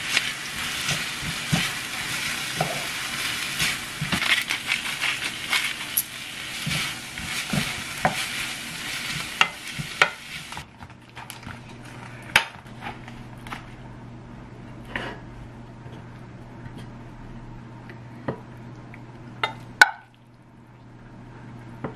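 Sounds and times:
food sizzling in a frying pan: 0.0 - 10.7.

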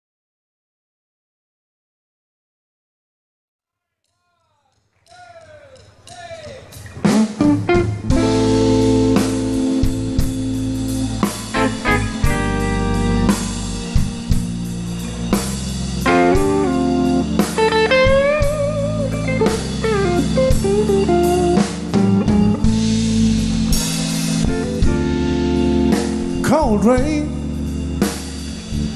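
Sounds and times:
blues band playing: 5.1 - 28.9
electric guitar lead lines: 6.7 - 28.9.

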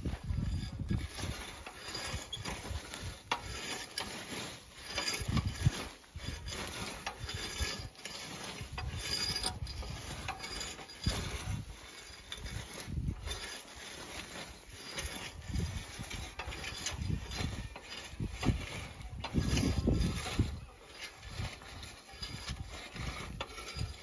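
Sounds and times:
blade scraping through gravelly soil: 0.0 - 24.0.

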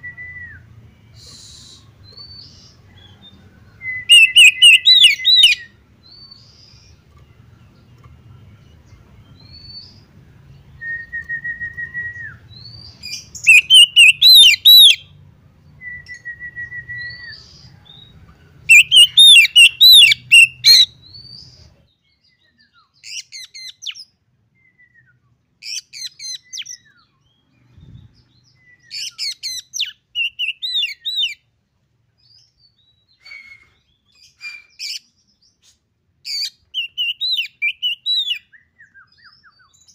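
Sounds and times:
long steady bird whistles: 0.0 - 31.5, 32.2 - 39.9
bird singing whistled phrases: 3.8 - 5.7, 10.7 - 15.0, 15.8 - 17.5, 18.7 - 21.4, 28.5 - 31.4, 36.3 - 39.9.

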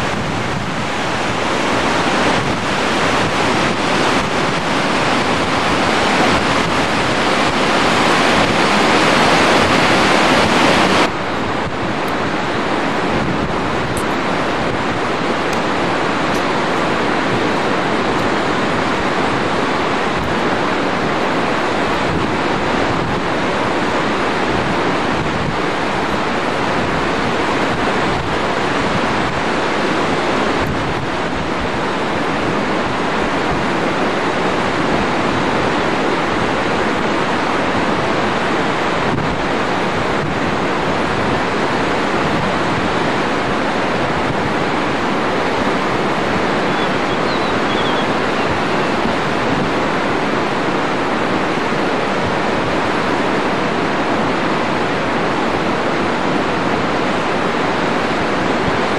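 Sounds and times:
river rushing over boulders: 0.0 - 58.9
wind buffeting microphone: 0.0 - 58.9.

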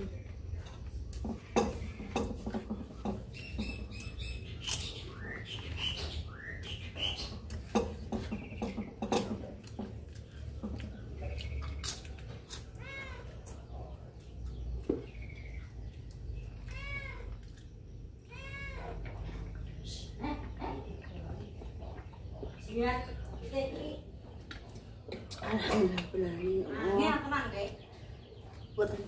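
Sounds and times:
light clicks and taps of food: 0.0 - 4.1, 7.3 - 18.1, 21.0 - 26.2
cat meowing: 16.7 - 17.3, 18.3 - 19.0.

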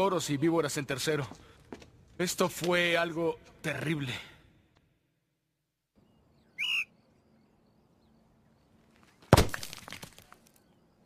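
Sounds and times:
faint bird-like chirps: 6.0 - 9.0, 10.3 - 11.0
rising whistle-like call: 6.4 - 7.1
loud thud: 9.3 - 9.8.

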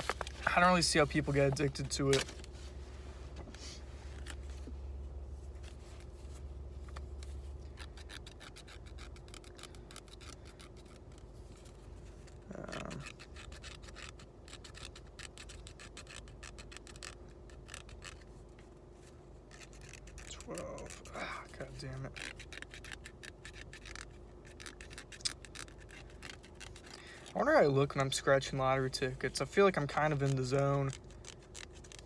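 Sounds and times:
scratching lottery tickets: 6.9 - 18.4, 19.4 - 32.0.

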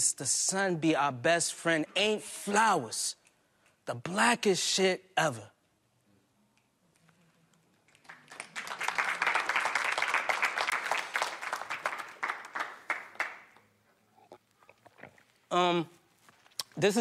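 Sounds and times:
audience applauding: 8.0 - 13.6.

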